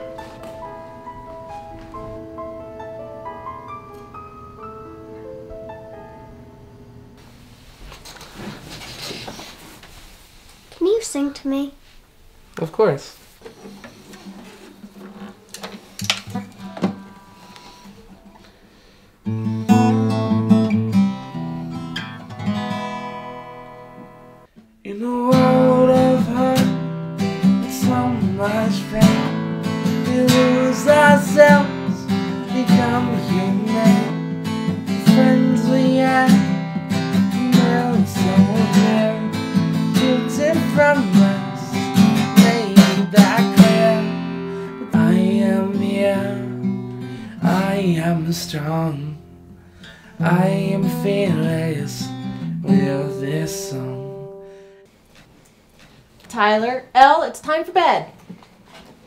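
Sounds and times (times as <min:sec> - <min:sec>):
acoustic guitar chord ringing: 0:00.0 - 0:07.2, 0:16.3 - 0:54.8
strummed acoustic guitar: 0:13.4 - 0:54.9.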